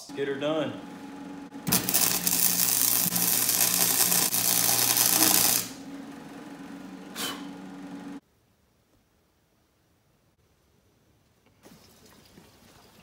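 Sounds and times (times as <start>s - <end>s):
power tool motor running: 1.0s - 5.9s.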